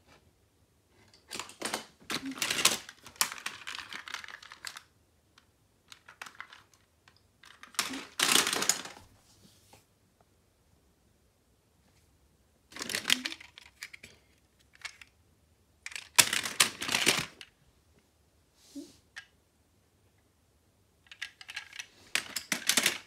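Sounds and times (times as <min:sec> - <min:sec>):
toy cars clattering in plastic bin: 0:01.2 - 0:04.9, 0:05.9 - 0:09.0, 0:12.7 - 0:14.0, 0:15.9 - 0:17.5, 0:21.1 - 0:23.0.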